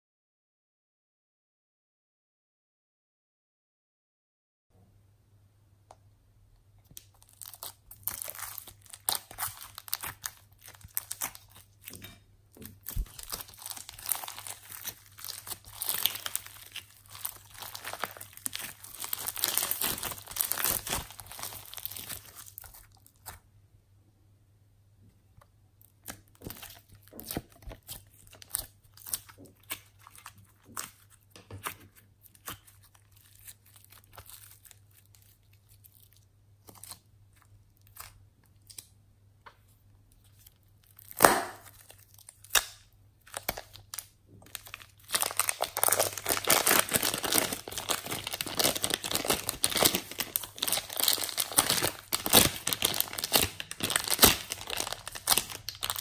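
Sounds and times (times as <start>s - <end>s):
foam beads crackling in slime: 6.9s - 23.4s, 32.2s - 38.7s, 40.2s - 56.0s.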